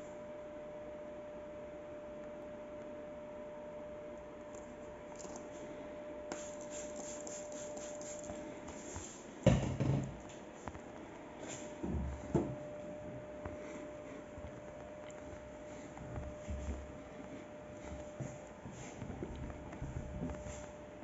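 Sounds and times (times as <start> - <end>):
spray bottle hissing: 6.3 - 9.2.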